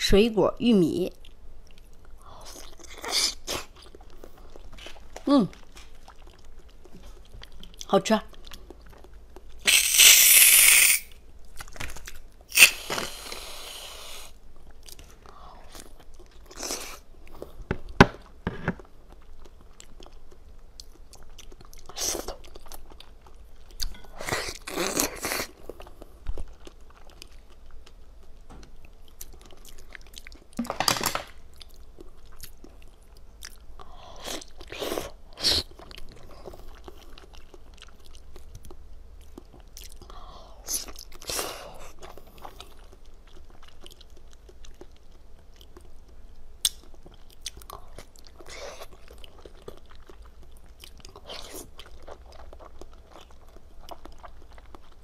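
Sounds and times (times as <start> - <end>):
close biting and chewing: 8.4 - 13.4.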